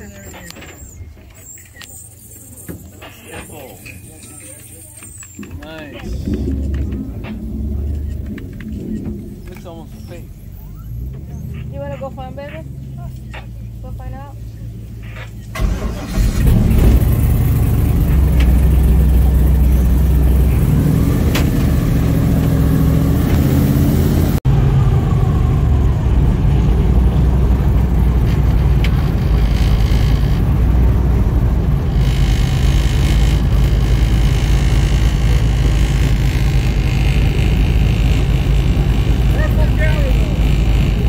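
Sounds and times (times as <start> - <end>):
airboat engine and propeller: 16.5 - 41.0.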